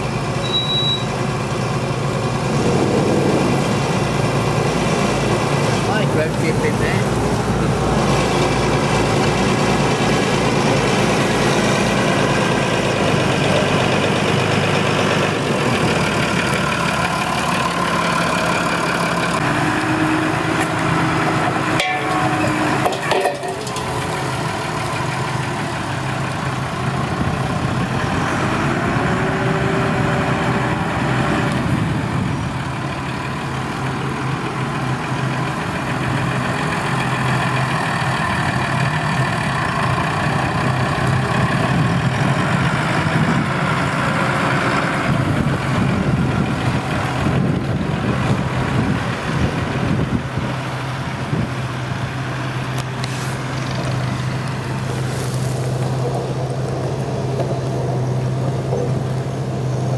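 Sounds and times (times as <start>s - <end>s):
tractor diesel engines running: 0.0s - 59.9s
rising and falling whine: 1.9s - 5.9s.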